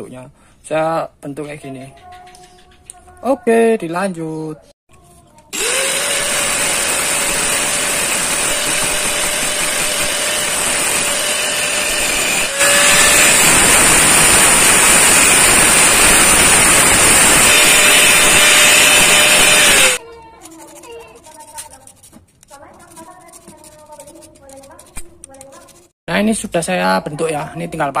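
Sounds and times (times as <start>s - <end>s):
angle grinder grinding metal: 5.6s - 22.0s.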